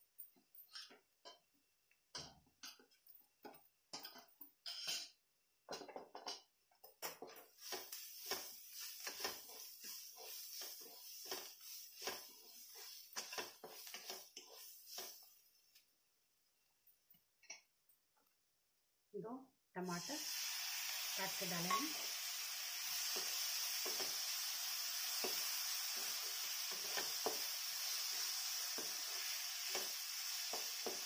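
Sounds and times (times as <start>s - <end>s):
spatula scraping in pan: 0.7s - 1.5s, 3.9s - 5.2s, 7.4s - 15.5s, 20.2s - 31.0s
vegetables frying hiss: 7.1s - 15.9s, 19.8s - 31.0s.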